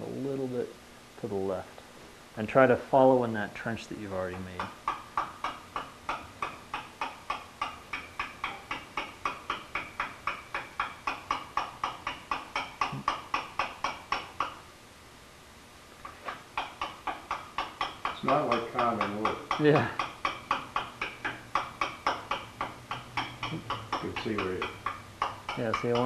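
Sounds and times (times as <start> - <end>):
mallet tapping chisel into stone: 4.3 - 14.6, 16.6 - 26.0.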